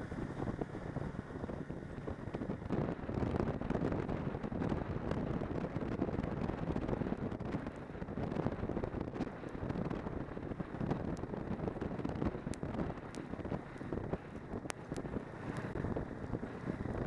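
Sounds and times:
snowmobile engine running: 0.0 - 17.0
wind buffeting microphone: 0.0 - 17.0
faint sharp ticks: 11.1 - 11.3, 12.4 - 15.9.

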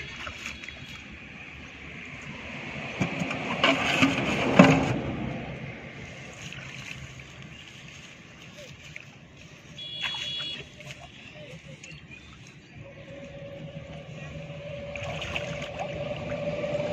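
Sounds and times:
motor vehicle passing: 1.6 - 7.4, 12.8 - 16.9.

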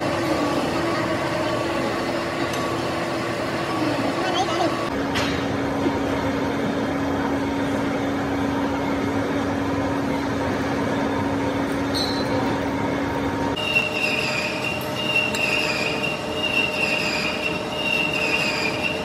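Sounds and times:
lathe hum with cutting noise: 0.0 - 19.0
high squeal of metal cutting: 13.6 - 19.0.

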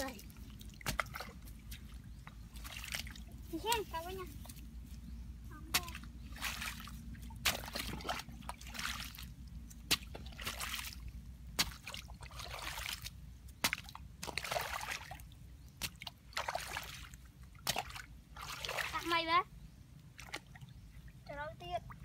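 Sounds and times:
water trickling: 0.0 - 4.1
muddy water splashing: 0.0 - 22.0
hoe chopping into wet mud: 0.8 - 1.3, 7.4 - 8.2, 9.8 - 10.9, 11.6 - 12.0, 13.6 - 14.6.

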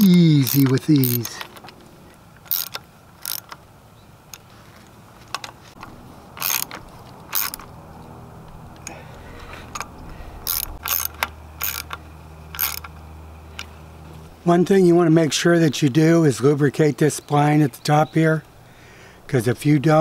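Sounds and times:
socket ratchet clicking: 0.0 - 1.7, 2.4 - 3.6, 6.4 - 7.7, 9.7 - 13.0.

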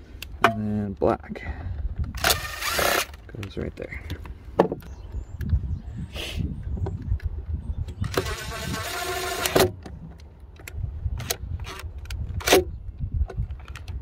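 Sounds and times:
cordless driver motor running: 2.2 - 3.2, 7.9 - 9.6.

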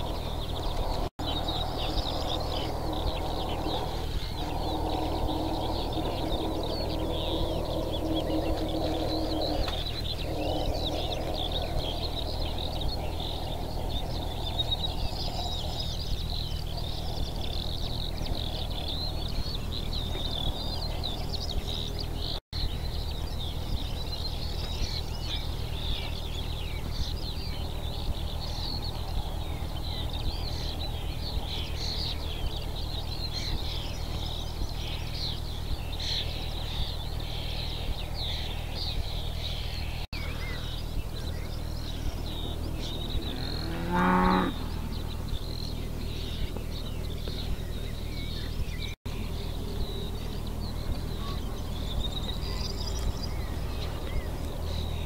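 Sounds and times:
small birds chirping: 0.0 - 55.0
steady low rumble: 0.0 - 55.0.

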